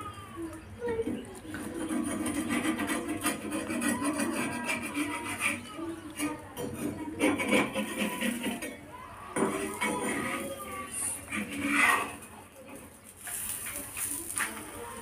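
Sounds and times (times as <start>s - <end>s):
steel spatula scraping a pan: 1.6s - 12.5s.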